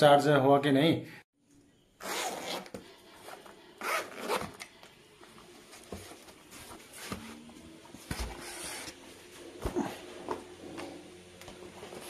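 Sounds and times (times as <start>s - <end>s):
zipper pulled open: 2.0s - 2.7s, 3.8s - 4.6s.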